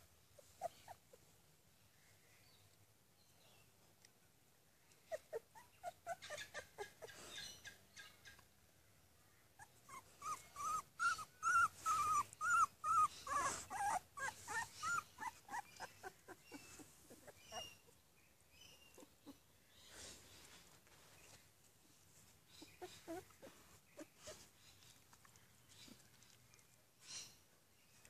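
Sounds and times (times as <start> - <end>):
puppies whimpering and squeaking: 0.4 - 1.0, 5.1 - 7.6, 9.6 - 18.0, 22.6 - 24.5.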